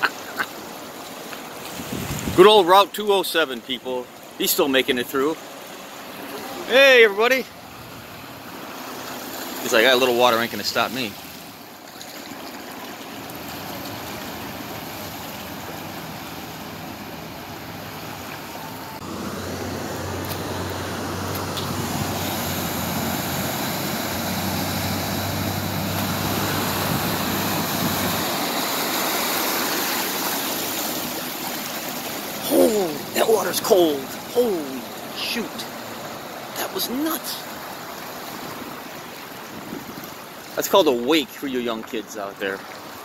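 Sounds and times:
water rushing: 0:00.0 - 0:43.0
low engine hum: 0:07.4 - 0:09.8, 0:10.4 - 0:36.6.

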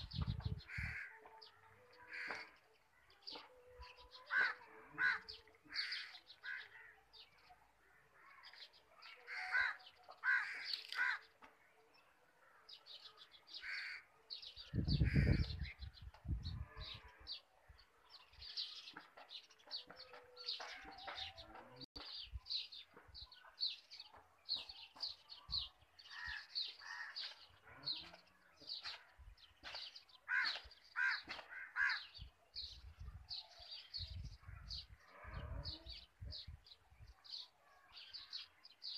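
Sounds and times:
harsh cawing calls: 0:09.3 - 0:11.2, 0:30.3 - 0:32.0.

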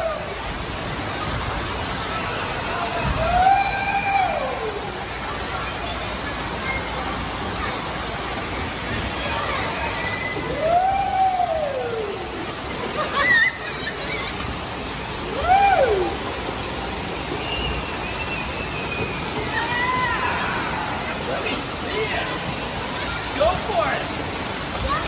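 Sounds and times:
water running down slide: 0:00.0 - 0:25.0
water splashing into pool: 0:00.0 - 0:25.0
high squeal: 0:17.4 - 0:20.3.

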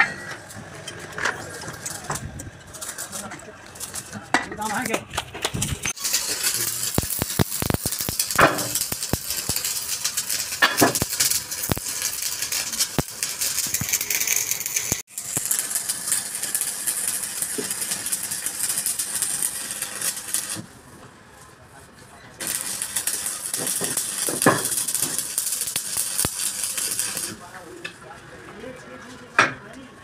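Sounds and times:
workshop noise hiss: 0:05.8 - 0:29.5.

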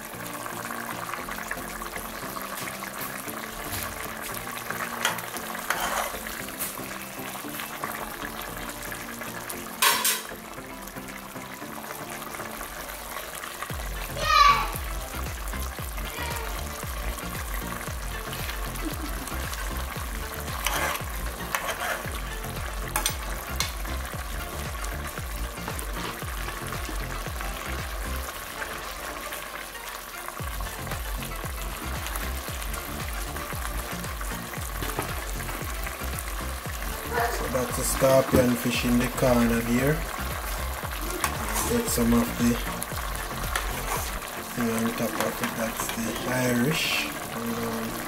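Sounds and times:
stew sizzling and bubbling: 0:00.0 - 0:48.0.

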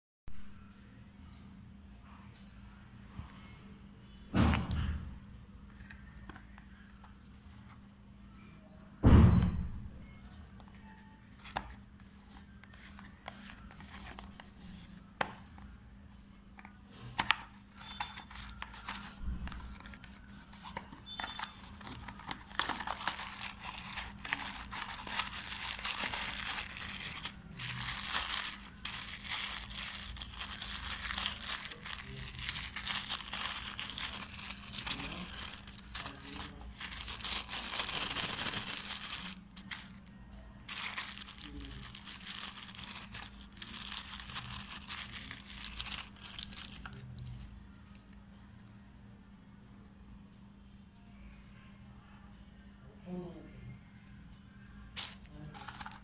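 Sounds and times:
loud thump: 0:09.0 - 0:09.7
plastic bag crinkling: 0:17.8 - 0:47.4, 0:55.0 - 0:56.0.

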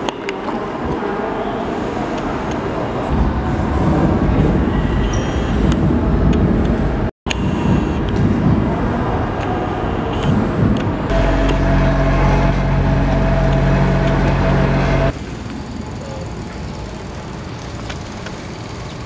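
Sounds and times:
busy city and station noise: 0:00.0 - 0:19.0
quiet street noise: 0:00.0 - 0:19.0
vehicle engine humming: 0:11.1 - 0:19.0.

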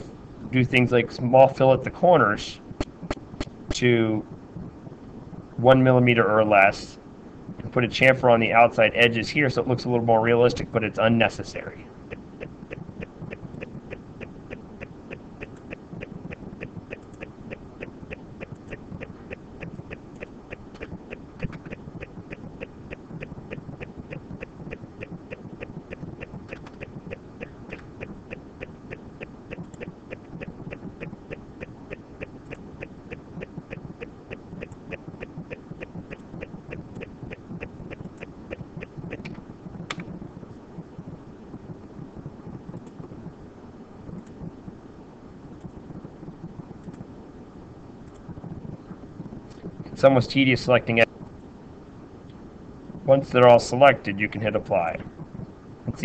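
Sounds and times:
low background hum: 0:00.0 - 0:56.0
steady even ticking: 0:02.6 - 0:06.7, 0:08.0 - 0:56.0
sharp clicks: 0:12.1 - 0:40.2.

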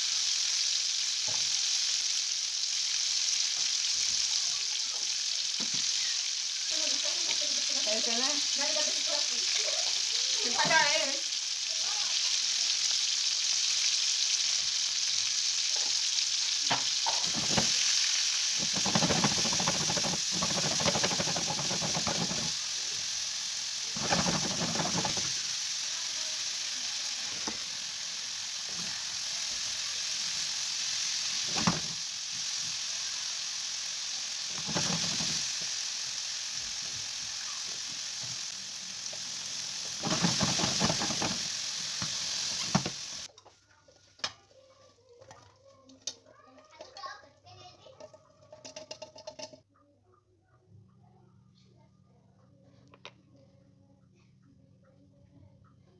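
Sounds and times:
food sizzling in a frying pan: 0:00.0 - 0:49.6
stirring in a pan: 0:16.7 - 0:33.1, 0:33.9 - 0:49.6
pan shaken to toss food: 0:17.1 - 0:17.9, 0:18.5 - 0:22.7, 0:23.8 - 0:25.6, 0:34.5 - 0:35.5, 0:39.9 - 0:43.1.

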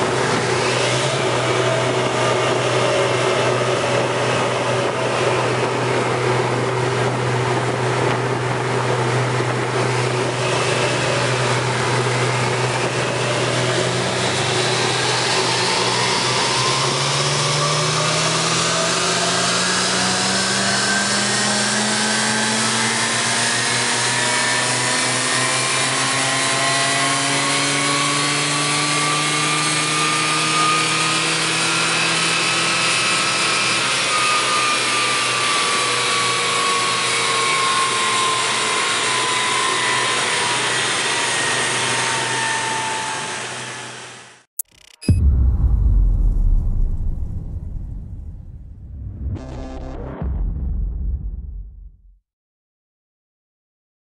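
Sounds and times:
car engine revving on dynamometer: 0:11.2 - 0:34.1
steady rushing noise: 0:44.8 - 0:52.0.

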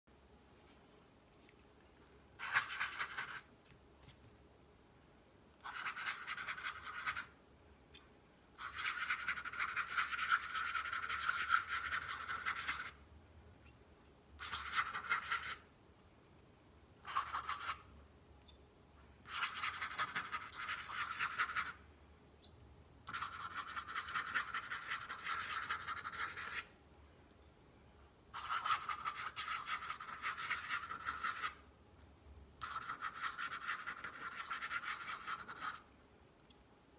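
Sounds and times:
pen nib scratching paper: 0:02.4 - 0:03.5, 0:05.6 - 0:07.4, 0:08.6 - 0:13.0, 0:14.4 - 0:15.7, 0:17.0 - 0:17.9, 0:19.2 - 0:21.8, 0:23.0 - 0:26.8, 0:28.3 - 0:31.6, 0:32.6 - 0:35.9.

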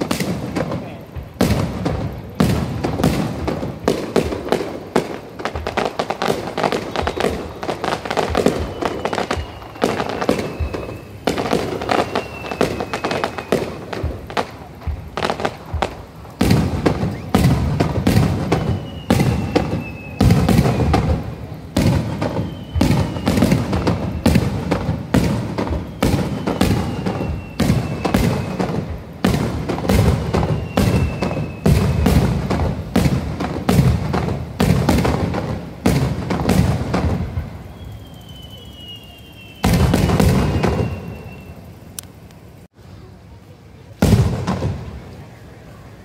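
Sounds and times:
fireworks bursting with rumble: 0:00.0 - 0:46.0.

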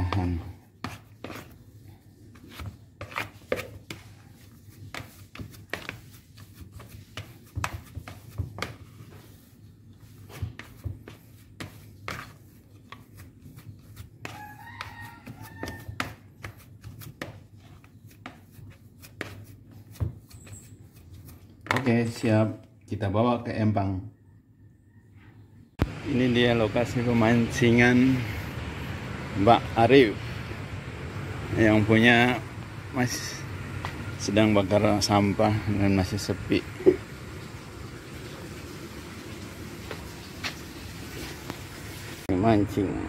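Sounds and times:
plastic paddle scraping a bowl: 0:02.2 - 0:21.5.

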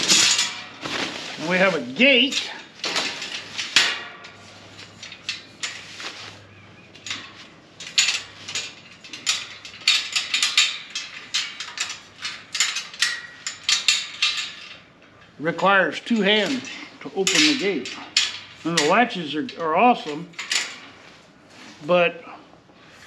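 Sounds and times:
gate latches clicking and clanking: 0:01.4 - 0:06.0, 0:06.9 - 0:15.4, 0:16.1 - 0:21.0
wire pen panel clinking and rattling: 0:16.2 - 0:20.9.

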